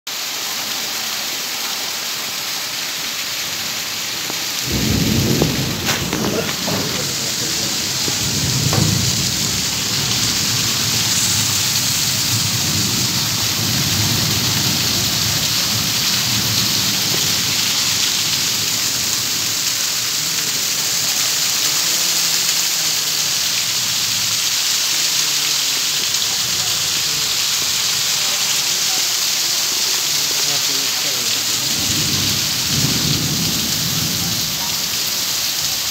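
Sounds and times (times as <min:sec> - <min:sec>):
heavy rain pouring: 0:00.1 - 0:35.9
low rumble of thunder: 0:04.6 - 0:19.3, 0:31.6 - 0:34.7.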